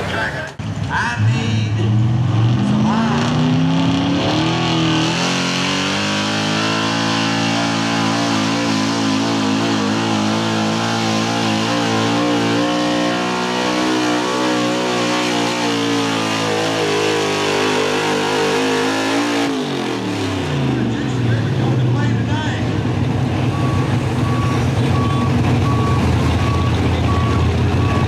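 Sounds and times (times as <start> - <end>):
pickup engine at full throttle: 0.6 - 28.0.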